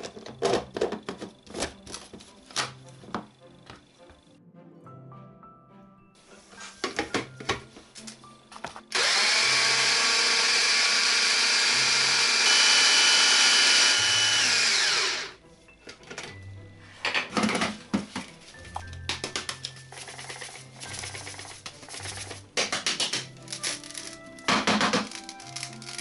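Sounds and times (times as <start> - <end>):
blender motor running: 8.9 - 15.4.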